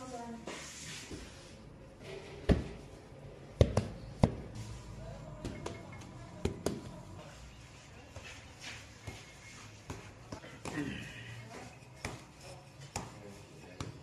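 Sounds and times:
dough balls thudding on table: 3.6s - 4.5s.

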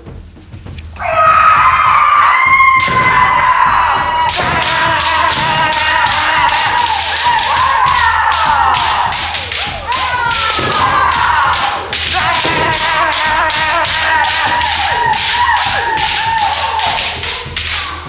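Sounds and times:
fencers shouting: 1.0s - 18.0s
bamboo swords clacking: 4.3s - 18.0s.

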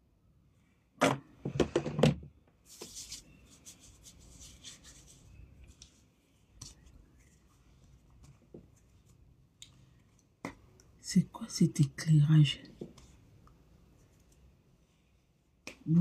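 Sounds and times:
rubbing and rustling: 2.6s - 10.2s.

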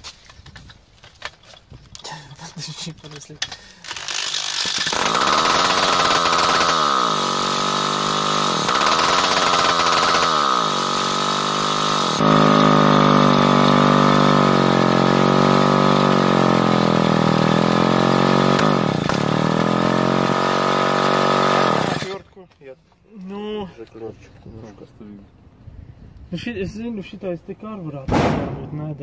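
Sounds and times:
drill motor whine: 3.9s - 22.2s
moped engine running: 3.9s - 22.2s.

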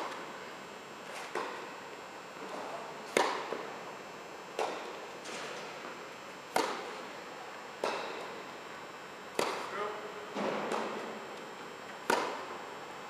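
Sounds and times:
tennis ball struck by racquet: 3.1s - 3.6s, 6.5s - 6.9s, 9.3s - 9.7s, 12.0s - 12.5s.

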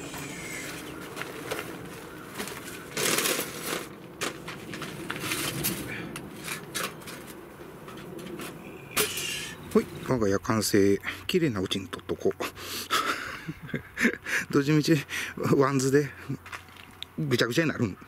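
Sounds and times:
fabric rustling: 0.0s - 8.6s.

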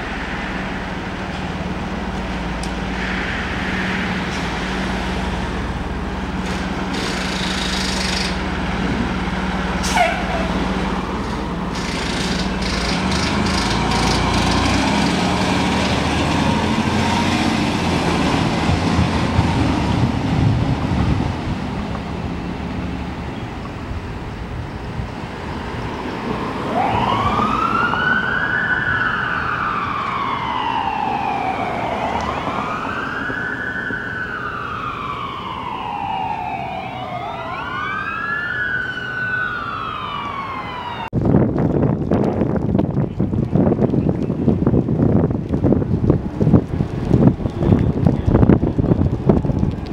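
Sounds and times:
fire engine diesel engine rumbling: 0.0s - 49.9s
traffic noise: 0.0s - 49.9s
siren wailing: 26.5s - 41.2s.

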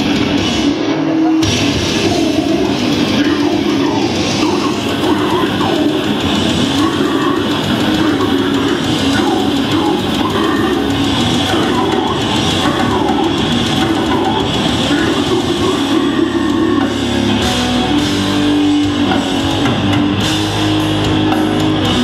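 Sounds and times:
death metal band playing live: 0.0s - 22.0s
growled vocals: 2.0s - 17.3s.

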